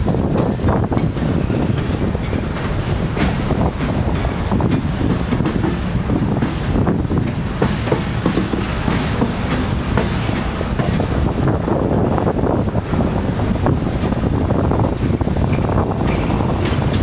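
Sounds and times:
steel wheels rumbling on rail: 0:00.0 - 0:17.0
wheels clicking over rail joints: 0:00.0 - 0:17.0
faint wheel squeals: 0:04.6 - 0:05.9, 0:08.2 - 0:08.8, 0:15.4 - 0:16.4.

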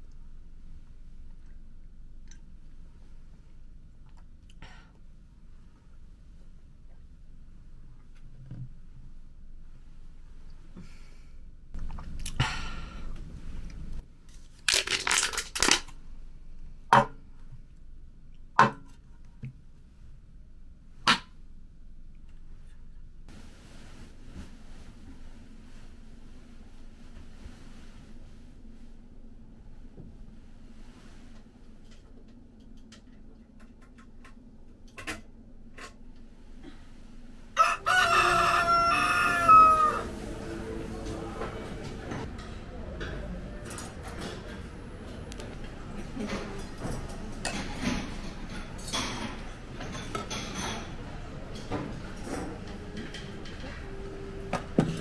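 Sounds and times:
aluminium can crushed by hand: 0:14.6 - 0:16.0
rooster crowing: 0:37.6 - 0:40.8.

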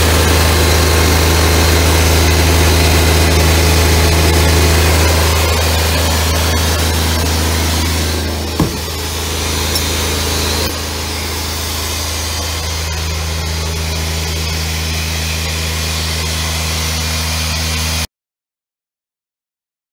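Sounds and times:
air compressor engine running: 0:00.0 - 0:18.0
knock on panel: 0:08.6 - 0:09.0.

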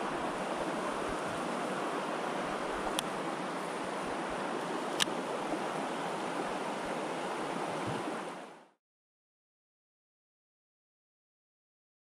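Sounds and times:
river water rushing: 0:00.0 - 0:08.8.

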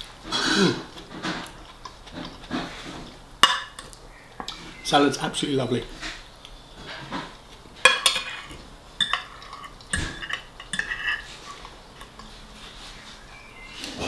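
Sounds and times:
cutlery scraping and clinking on plate: 0:01.0 - 0:04.8, 0:06.8 - 0:13.0.

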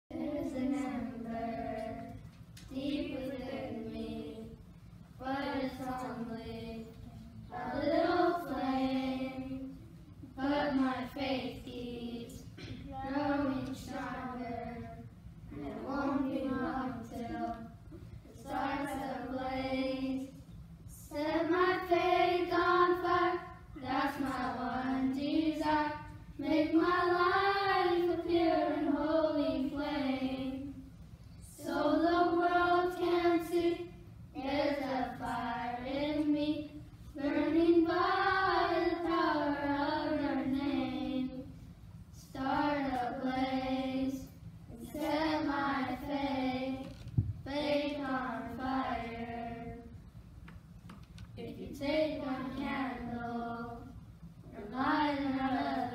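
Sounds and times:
children singing in unison: 0:21.2 - 0:30.7.

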